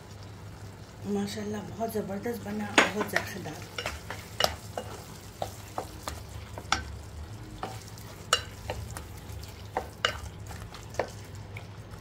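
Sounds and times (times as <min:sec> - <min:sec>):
low steady hum: 0:00.0 - 0:12.0
meat frying in a pot: 0:00.0 - 0:12.0.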